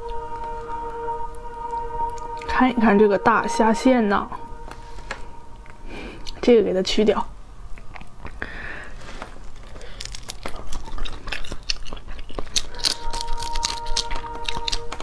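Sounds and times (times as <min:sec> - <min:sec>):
bite: 0:09.6 - 0:15.0.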